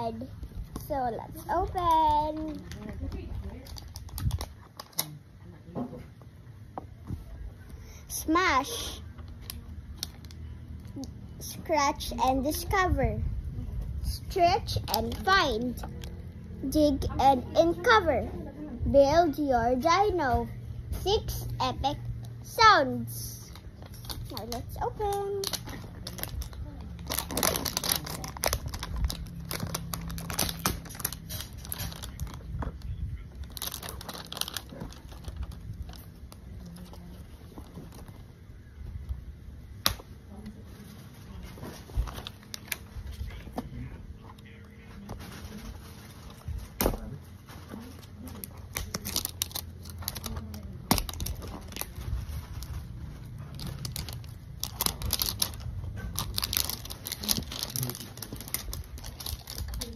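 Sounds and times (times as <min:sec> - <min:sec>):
plastic packaging crinkling: 0:01.6 - 0:05.1, 0:23.5 - 0:38.3, 0:47.4 - 0:59.9.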